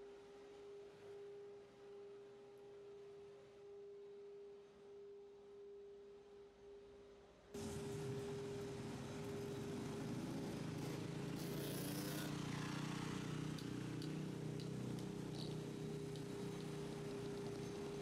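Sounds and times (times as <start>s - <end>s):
truck engine humming and whining: 7.6s - 18.0s.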